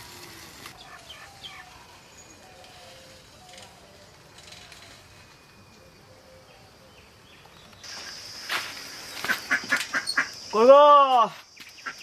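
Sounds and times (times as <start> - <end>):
faint bird chirps: 0.8 - 8.2
bicycle clicks and rattles: 2.5 - 5.4
high insect buzz: 6.9 - 12.0.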